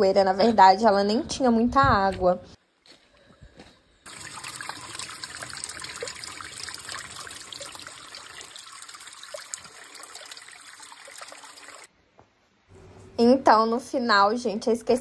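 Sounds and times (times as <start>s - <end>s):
water trickling down rock channel: 4.1s - 11.9s.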